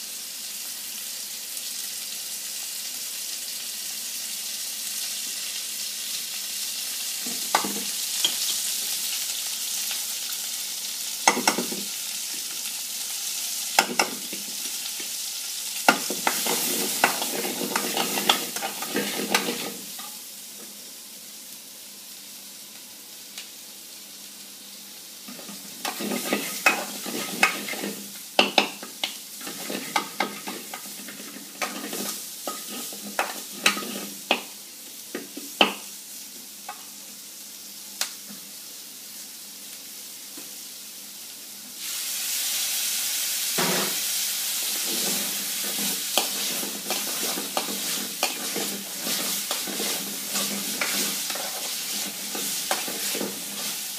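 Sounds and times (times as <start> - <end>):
vegetables sizzling in a pan: 0.0 - 53.9
utensil knocking and scraping pan: 15.9 - 19.8, 25.3 - 28.8, 29.4 - 34.4, 44.8 - 53.8.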